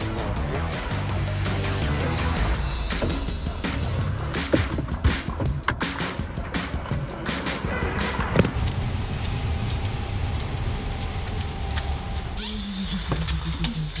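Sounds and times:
road rumble inside car: 8.4 - 14.0.

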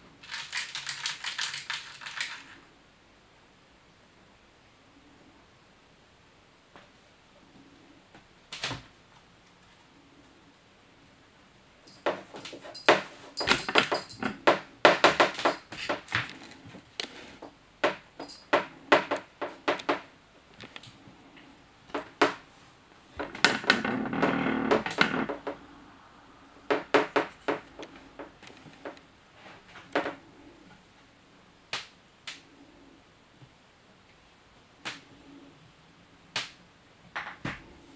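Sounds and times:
ball rolling rattle: 0.2 - 2.6, 11.9 - 16.6.

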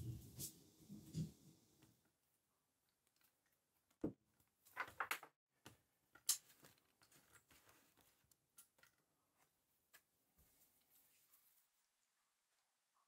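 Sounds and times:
crinkling tape rustle: 6.1 - 9.1.

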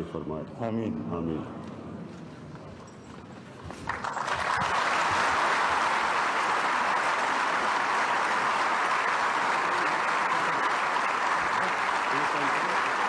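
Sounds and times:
audience applauding: 3.7 - 13.0.

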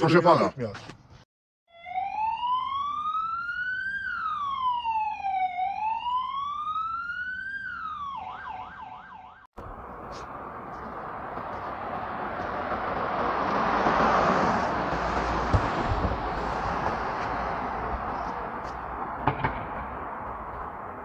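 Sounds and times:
police siren wailing and yelping: 1.7 - 9.5
outdoor background noise: 1.9 - 21.0.

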